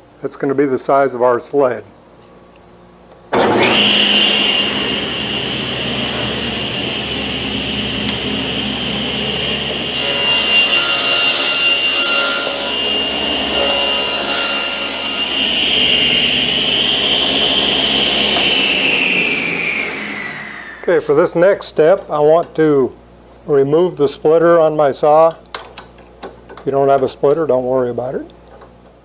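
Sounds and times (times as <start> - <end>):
table saw whine: 3.3 - 21.6
saw blade cutting plywood: 7.7 - 20.8.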